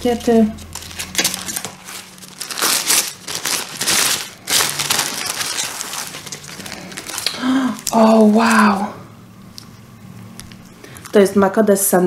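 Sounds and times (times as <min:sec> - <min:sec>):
paper wrapping crinkling: 0:00.0 - 0:08.9.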